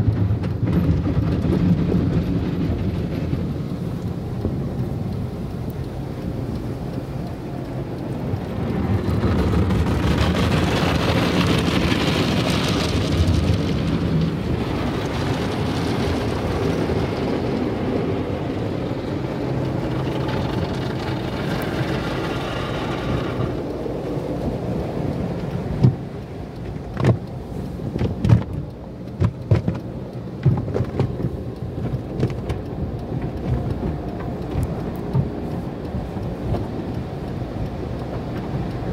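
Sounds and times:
car wash brushes scrubbing: 5.8 - 38.6.

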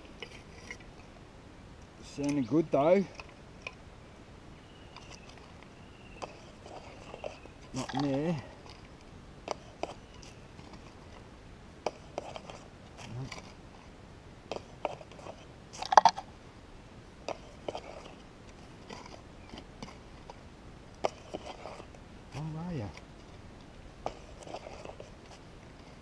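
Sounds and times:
dirt scratching and crunching: 4.7 - 16.4, 17.2 - 26.0.

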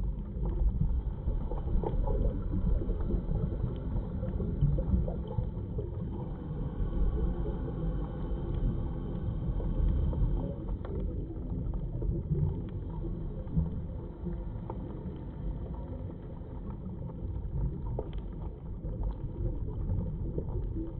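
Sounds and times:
muffled underwater rumble: 0.0 - 20.9
faint clicks: 9.7 - 20.9.

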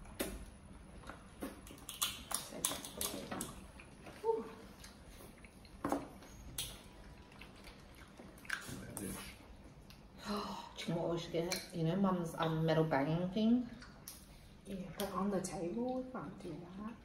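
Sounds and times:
eating and handling sounds: 0.0 - 10.2.

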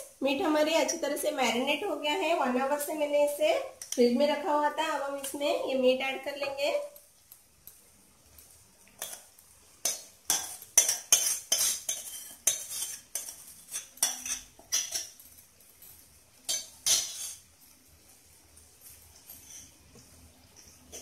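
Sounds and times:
wooden spatula scraping metal bowl: 9.8 - 15.2, 16.5 - 17.4, 19.1 - 19.8.

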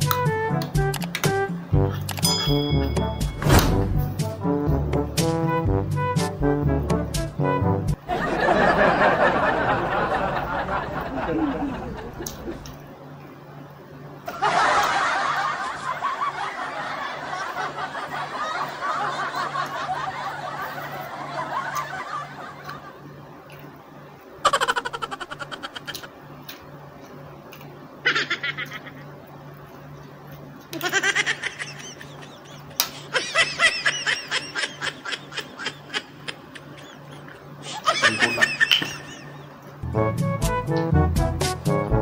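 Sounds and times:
person laughing: 9.6 - 12.7, 24.4 - 26.1, 28.0 - 29.2, 30.8 - 39.5.

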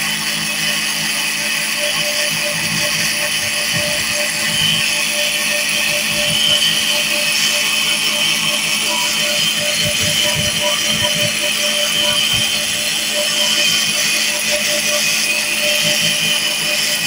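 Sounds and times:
cotton candy machine humming: 0.0 - 17.0.

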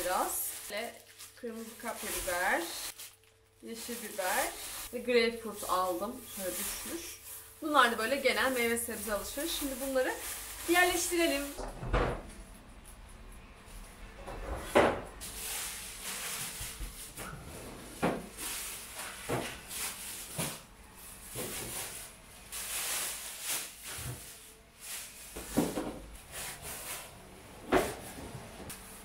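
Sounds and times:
plastic bag rustling: 0.0 - 11.6, 15.2 - 27.2
items knocking on fridge shelves: 11.0 - 12.4, 14.4 - 15.1, 16.6 - 20.6, 25.3 - 26.2.

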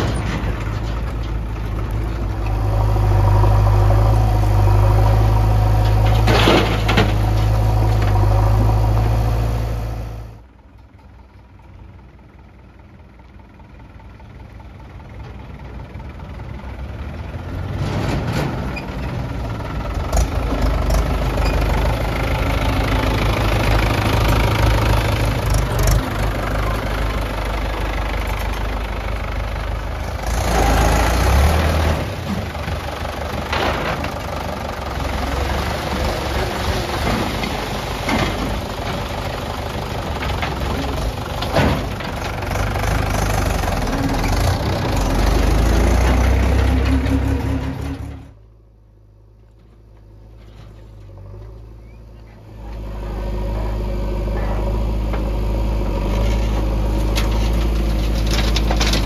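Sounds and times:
tractor engine revving: 0.0 - 10.5, 13.4 - 48.5, 52.4 - 59.0
diesel tractor engine idling: 0.0 - 17.8, 18.5 - 59.0
sharp engine knocks: 40.1 - 42.8.

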